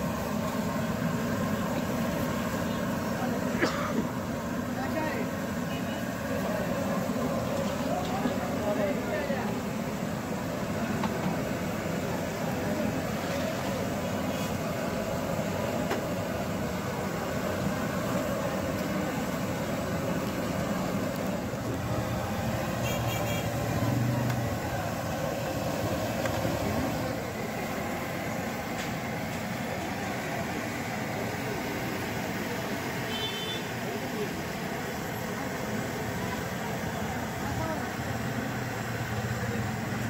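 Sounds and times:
traffic noise: 0.0s - 40.0s
loud vehicle passing: 21.8s - 27.2s.

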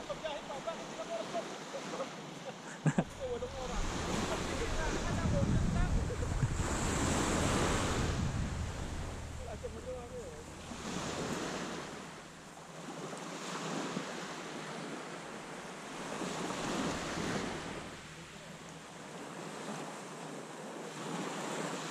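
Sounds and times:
small waves breaking on beach: 0.0s - 21.9s.

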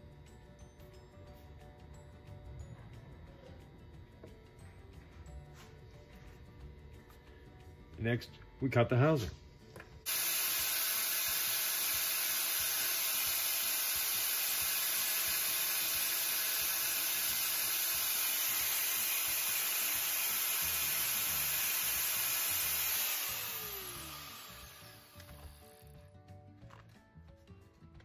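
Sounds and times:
angle grinder cutting disc whine: 10.1s - 26.0s.

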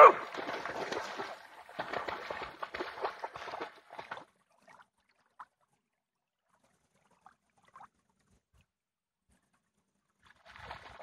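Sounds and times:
dog splashing through water: 0.0s - 4.3s.

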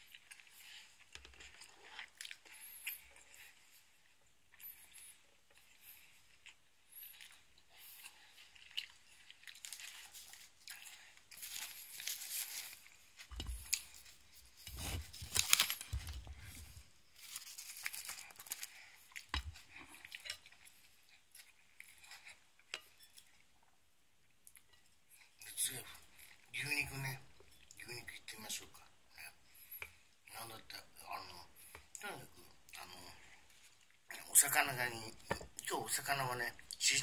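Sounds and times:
crisp rustling and crinkling: 0.0s - 22.3s.

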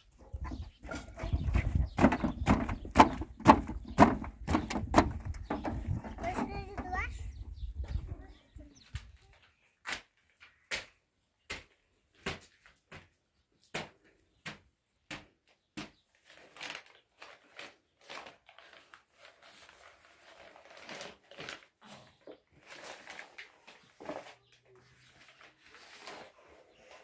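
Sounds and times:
paper crackling and rustling: 16.1s - 27.0s.

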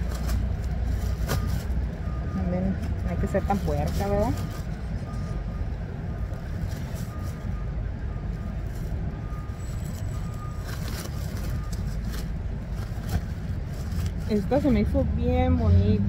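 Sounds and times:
vehicle engine running: 0.0s - 16.0s
reversing alarm beeping: 1.4s - 12.0s.

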